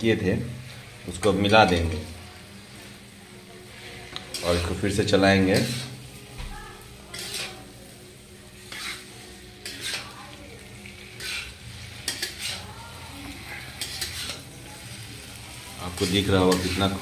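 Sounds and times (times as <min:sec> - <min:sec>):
low sizzle of frying: 0:00.0 - 0:17.0
metal spatula scraping a pan: 0:03.7 - 0:06.2, 0:07.0 - 0:07.8, 0:08.6 - 0:14.6, 0:15.8 - 0:17.0.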